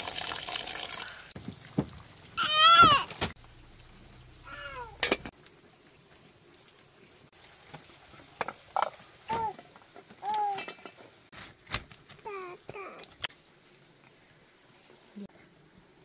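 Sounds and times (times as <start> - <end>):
short high falling cries: 2.4 - 3.1.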